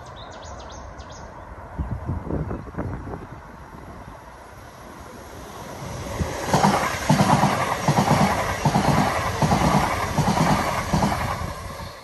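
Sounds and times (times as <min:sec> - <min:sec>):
electric train passing: 0:00.8 - 0:12.0
wheels beating on rail: 0:05.1 - 0:12.0.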